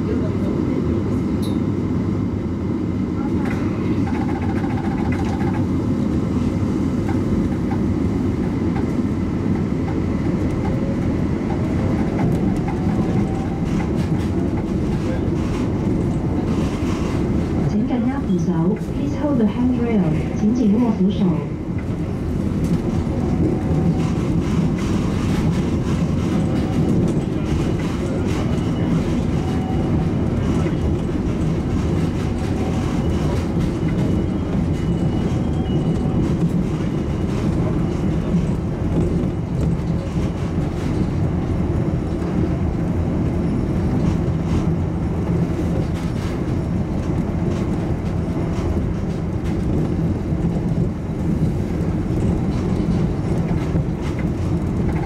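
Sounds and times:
shuttle train rumbling: 0:00.0 - 0:55.0.

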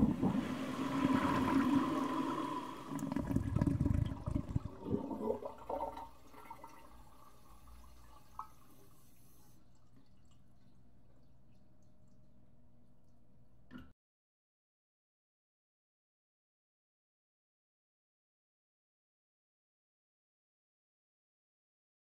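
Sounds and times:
toilet flushing: 0:00.0 - 0:10.2.

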